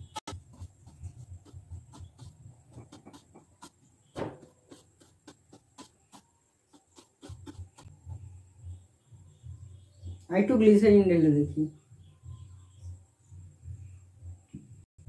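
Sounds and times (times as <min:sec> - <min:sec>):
knock: 0:04.1 - 0:04.8.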